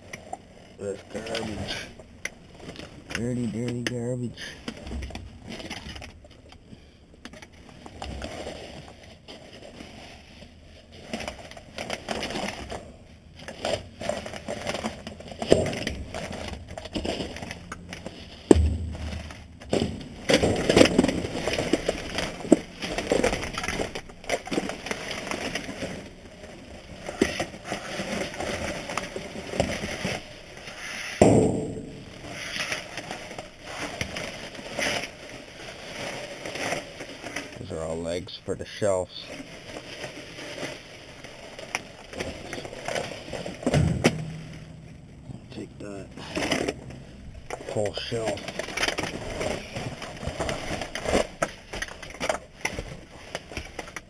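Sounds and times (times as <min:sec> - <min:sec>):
plastic trash bags rustling: 0:00.0 - 0:54.0
boxes and items knocking: 0:18.4 - 0:24.8, 0:42.3 - 0:47.7.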